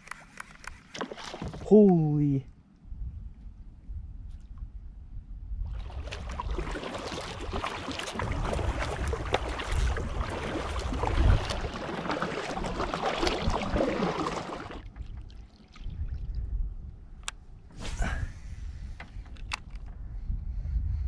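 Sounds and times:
paddle blades splashing: 0:00.0 - 0:02.0, 0:05.7 - 0:16.0
water washing along hull: 0:00.9 - 0:01.9, 0:05.7 - 0:16.1.

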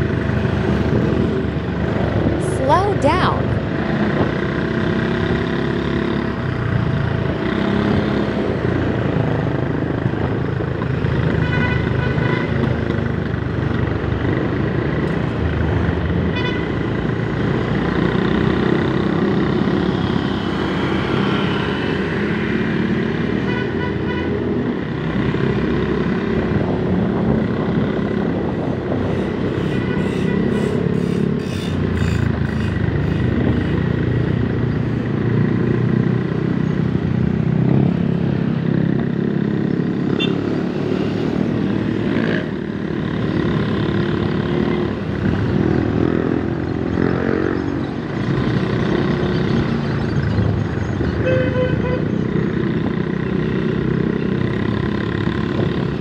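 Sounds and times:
scooter engine and road noise: 0:00.0 - 0:56.0
vehicle horn toots: 0:11.4 - 0:12.6, 0:16.3 - 0:16.8, 0:29.0 - 0:33.5, 0:40.2 - 0:40.4, 0:51.2 - 0:52.1.

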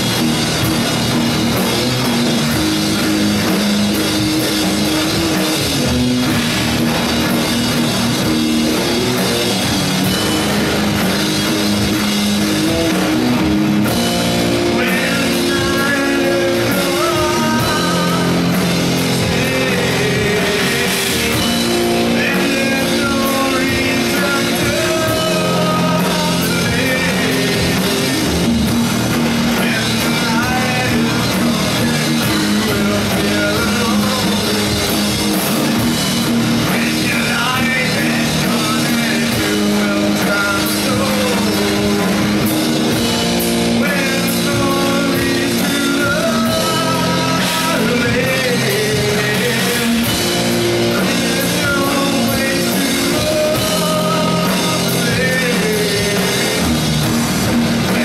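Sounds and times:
drum kit: 0:00.0 - 0:58.0
electric guitars: 0:00.0 - 0:58.0
person singing: 0:12.7 - 0:28.4, 0:29.5 - 0:35.9, 0:36.6 - 0:43.0, 0:43.6 - 0:56.8.

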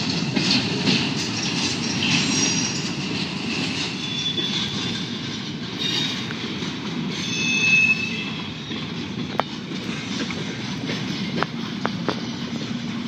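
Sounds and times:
train wheels rumbling on rail: 0:00.0 - 0:13.0
high-pitched wheel squeals: 0:03.8 - 0:05.1, 0:05.8 - 0:06.2, 0:07.1 - 0:08.9.

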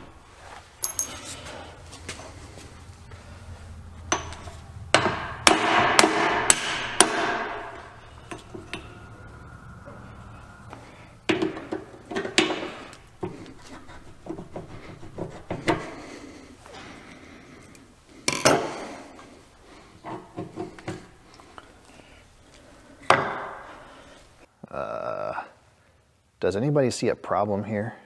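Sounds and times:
hammer striking metal: 0:00.8 - 0:01.3
metal parts clinking: 0:00.8 - 0:01.4.

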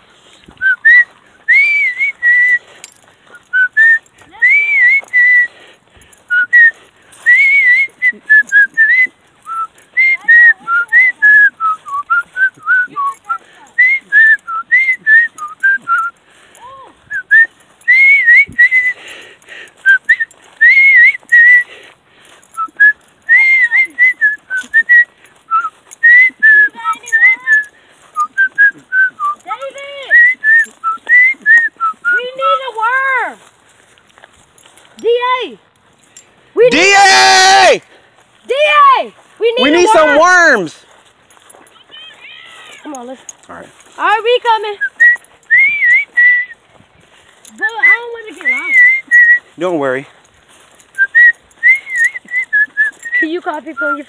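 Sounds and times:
light footsteps: 0:00.0 - 0:54.0
person whistling a tune: 0:00.5 - 0:21.8, 0:22.4 - 0:32.6, 0:39.6 - 0:40.6, 0:44.7 - 0:46.6, 0:47.4 - 0:49.6, 0:50.8 - 0:54.0.

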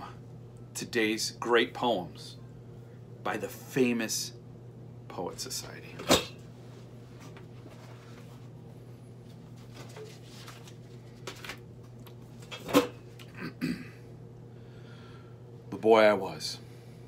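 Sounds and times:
steady low hum: 0:00.0 - 0:17.0
book pages rustling: 0:09.3 - 0:11.7.

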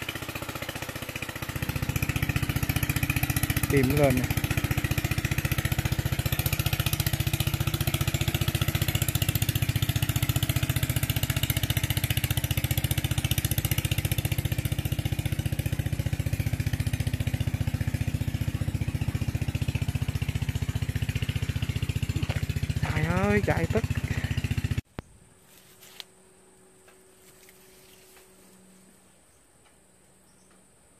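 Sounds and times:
small engine running steadily: 0:00.0 - 0:25.0.

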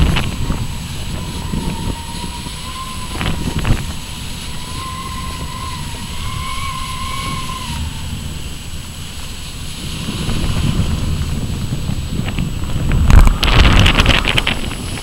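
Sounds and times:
wind buffeting microphone: 0:00.0 - 0:15.0
thin wavering whistle: 0:00.2 - 0:08.6.

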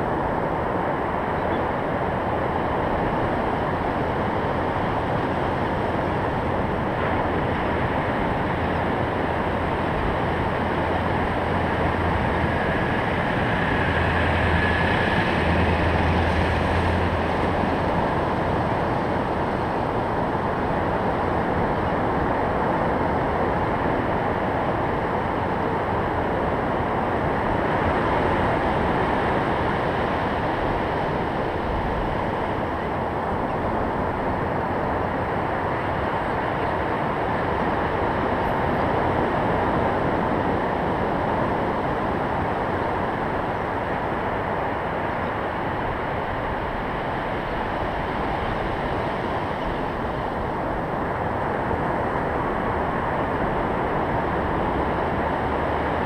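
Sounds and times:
ocean surf breaking on beach: 0:01.9 - 0:56.0.

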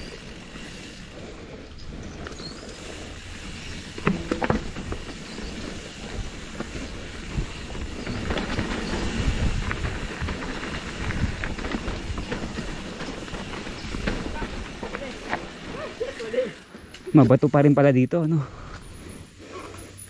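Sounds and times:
bike tyres crunching over stones: 0:00.0 - 0:17.6
bike rattling: 0:00.0 - 0:20.0
bike knocking on rocks: 0:03.8 - 0:15.7.

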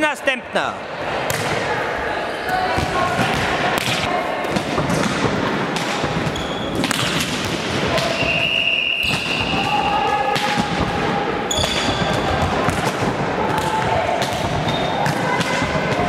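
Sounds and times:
balls thudding in echoing hall: 0:00.9 - 0:16.0
shoe squeaks: 0:06.3 - 0:06.8.

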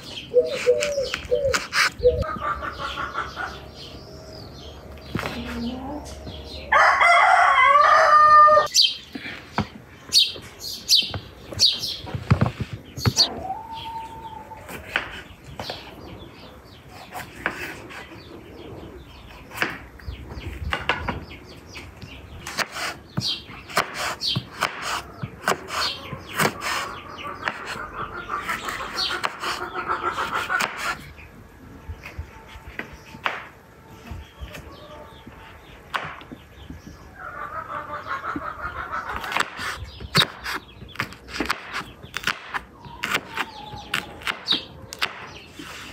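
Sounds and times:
chickens clucking: 0:00.0 - 0:45.9
rooster crowing: 0:06.7 - 0:08.7.

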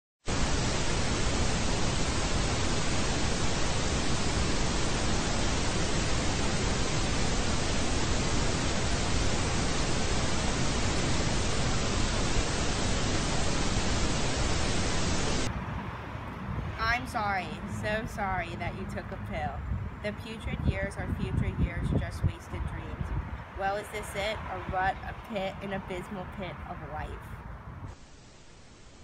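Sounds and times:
static hiss: 0:00.2 - 0:15.5, 0:27.8 - 0:29.0.

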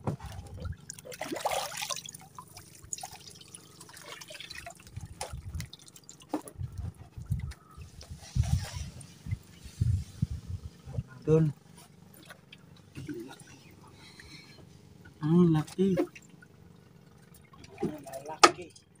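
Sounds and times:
water splashing: 0:00.0 - 0:07.7, 0:15.3 - 0:18.7.

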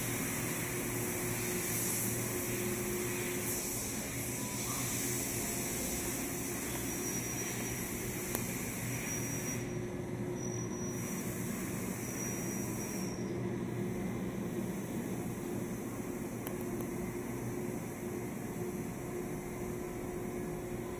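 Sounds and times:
hiss: 0:00.0 - 0:09.8, 0:10.8 - 0:13.2.

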